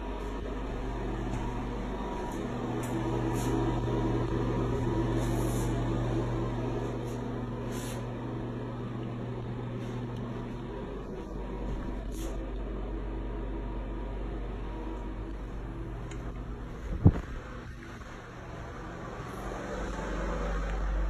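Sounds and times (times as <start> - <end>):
fan motor humming: 0.0 - 21.0.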